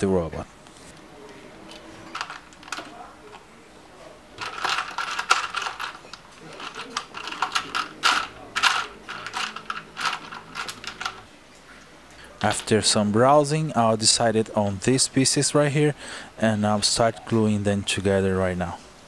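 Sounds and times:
plastic parts clicking and rattling: 0:01.7 - 0:03.4, 0:04.4 - 0:11.3.

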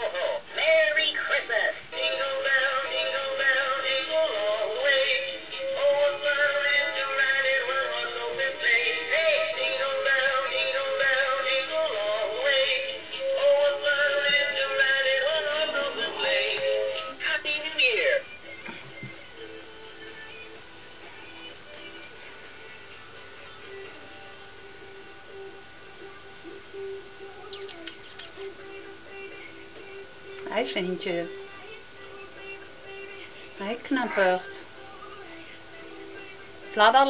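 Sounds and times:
music with singing voice: 0:00.0 - 0:37.0.

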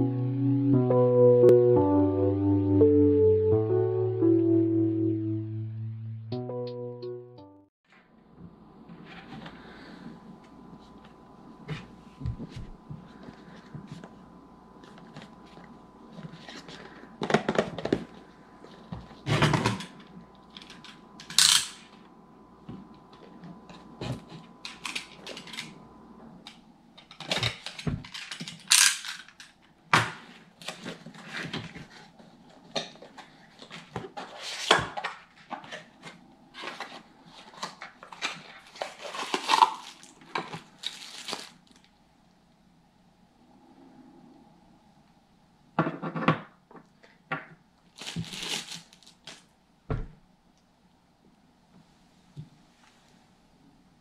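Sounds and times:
wrapping rustling: 0:36.6 - 0:41.9, 0:47.8 - 0:49.5.

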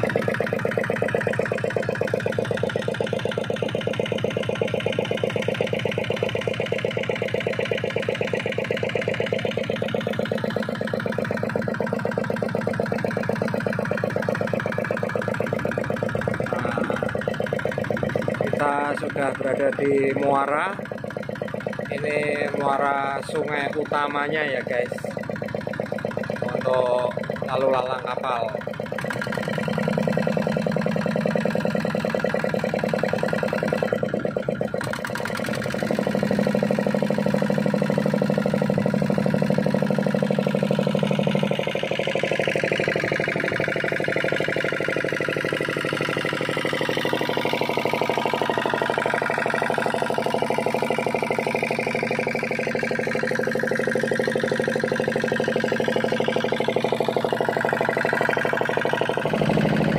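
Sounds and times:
boat diesel engine chugging: 0:00.0 - 0:59.9.

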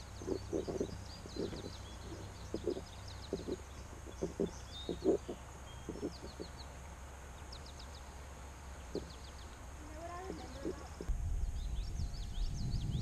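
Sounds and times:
soft irregular thuds: 0:00.0 - 0:06.7, 0:08.9 - 0:11.2
birds chirping: 0:00.0 - 0:13.0.

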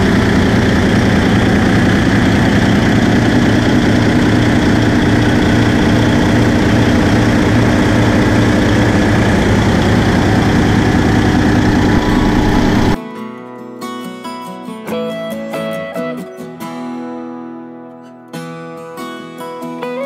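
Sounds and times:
diesel engine running steadily: 0:00.0 - 0:13.0.

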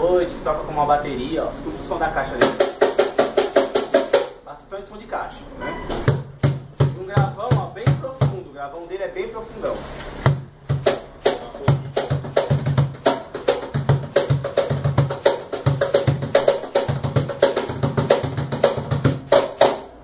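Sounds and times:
cajon played by hand: 0:02.4 - 0:04.4, 0:06.0 - 0:08.4, 0:10.2 - 0:20.0.

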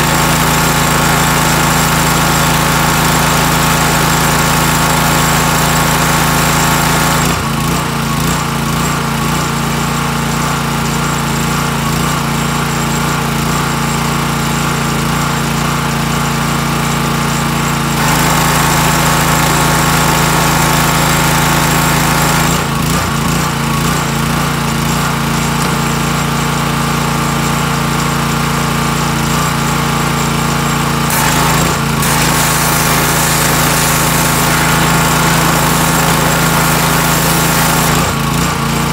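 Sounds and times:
pressure washer engine running: 0:00.0 - 0:38.9
high-pressure water jet hissing: 0:31.1 - 0:38.9.

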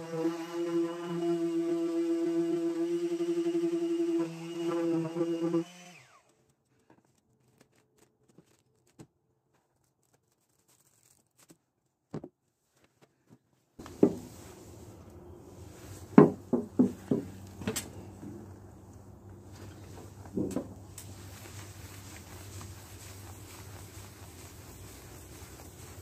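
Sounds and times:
orbital sander spinning down: 0:00.0 - 0:06.3
sharp knocks and handling: 0:10.1 - 0:14.5, 0:16.0 - 0:18.5, 0:19.6 - 0:21.1
low background hum: 0:13.8 - 0:26.0.

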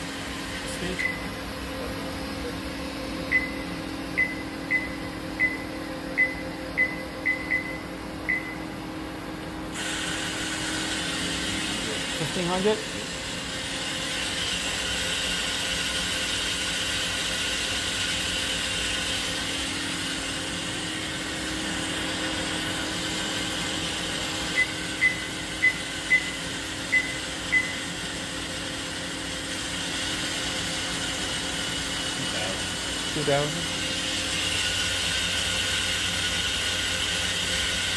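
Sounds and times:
milling tool whirring hum: 0:00.0 - 0:37.9
short high beeps: 0:03.3 - 0:08.6.

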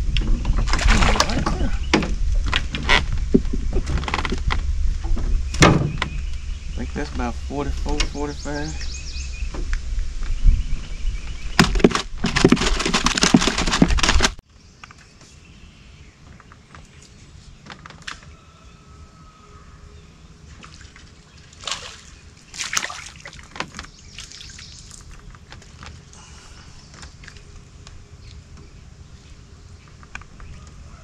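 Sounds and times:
water splashing and sloshing: 0:00.0 - 0:08.5, 0:20.4 - 0:26.1
water lapping: 0:20.5 - 0:25.2.

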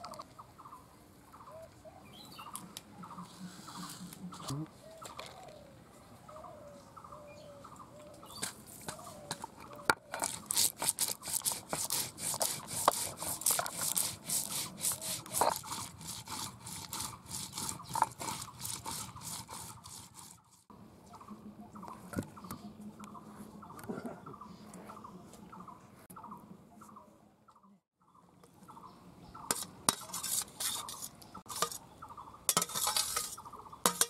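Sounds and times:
faint birds calling: 0:00.0 - 0:10.4, 0:21.0 - 0:32.5
seeds crushed on a grinding stone: 0:09.5 - 0:20.5.

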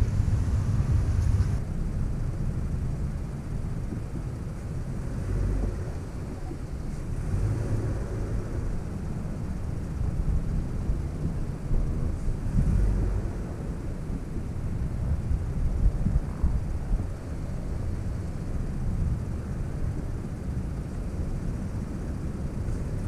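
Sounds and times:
engine rumbling under load: 0:00.0 - 0:23.0
tires spinning in loose dirt: 0:00.0 - 0:23.0.

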